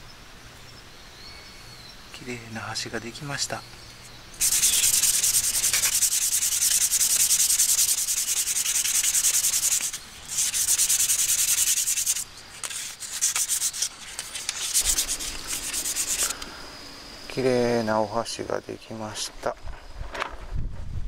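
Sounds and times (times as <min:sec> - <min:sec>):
sandpaper rasping on wood: 0:04.4 - 0:16.4.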